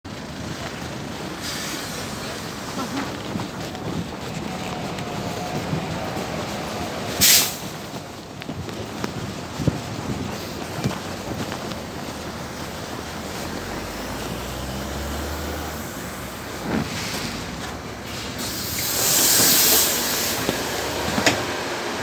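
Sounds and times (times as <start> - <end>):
bus engine running: 0.0 - 22.0
street traffic: 0.0 - 22.0
compressed air hiss: 1.4 - 3.0, 7.2 - 7.7, 15.7 - 20.8.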